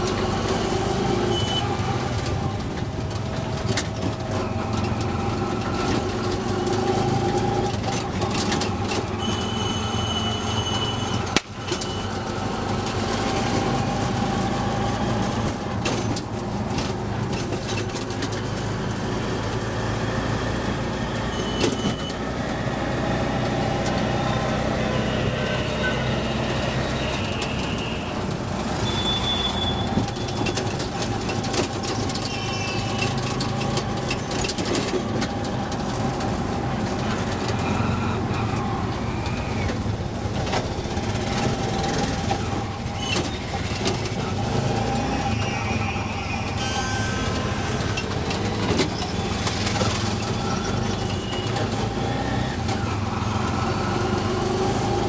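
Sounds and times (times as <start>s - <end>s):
vehicle horns: 1.0s - 2.0s, 8.9s - 12.4s, 21.1s - 22.3s, 24.8s - 31.2s, 32.1s - 34.9s, 42.0s - 53.0s.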